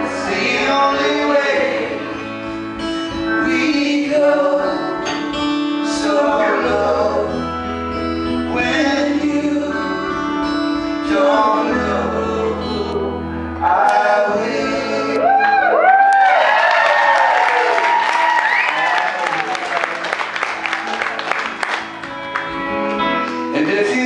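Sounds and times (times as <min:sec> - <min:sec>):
men singing in harmony: 0:00.0 - 0:02.5, 0:03.3 - 0:05.2, 0:05.8 - 0:07.5, 0:08.5 - 0:15.4
low bass notes: 0:00.0 - 0:15.9.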